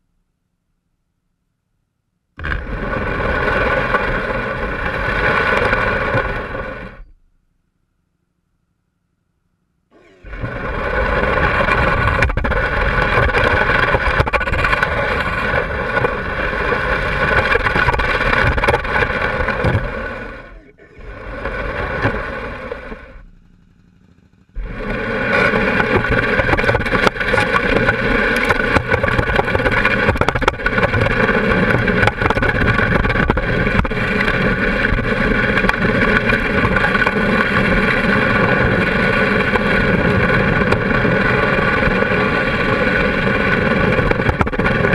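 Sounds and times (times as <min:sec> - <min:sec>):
motorcycle engine running: 0:10.3 - 0:44.9.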